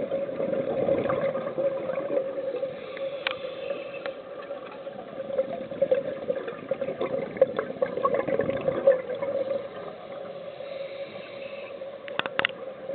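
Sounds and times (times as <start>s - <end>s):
bubbling air exhalation underwater: 0.0s - 2.5s, 5.2s - 9.9s.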